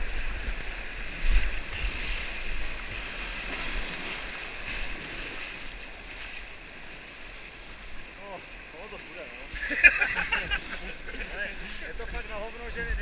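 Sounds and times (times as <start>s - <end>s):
wind buffeting on microphone: 0.0s - 6.4s, 9.5s - 13.0s
whitewater rushing and splashing: 0.0s - 13.0s.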